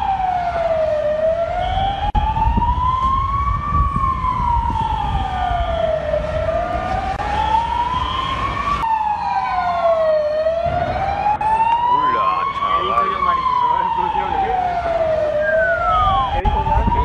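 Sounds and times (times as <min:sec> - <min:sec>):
emergency siren wailing: 0:00.0 - 0:17.0.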